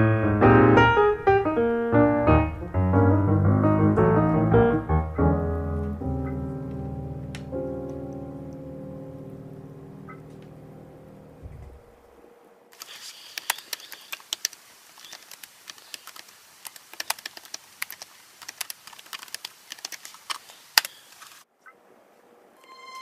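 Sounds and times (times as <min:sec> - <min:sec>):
laptop keyboard typing: 0:13.4 - 0:20.2.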